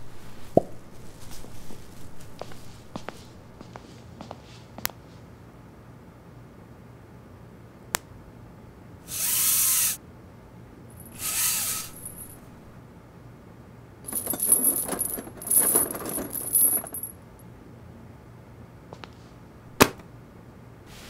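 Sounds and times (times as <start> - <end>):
zip being pulled: 11.1 - 12.3.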